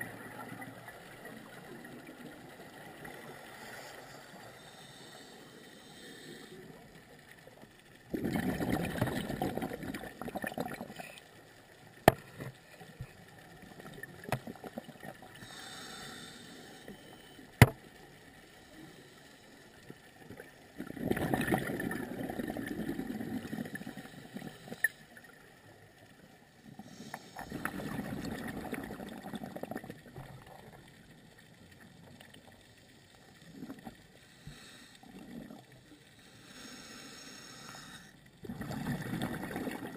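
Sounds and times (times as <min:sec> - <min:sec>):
exhaled bubbles gurgling: 0:08.0 - 0:11.2, 0:20.3 - 0:25.3, 0:26.6 - 0:31.2, 0:33.4 - 0:36.0, 0:38.4 - 0:39.9.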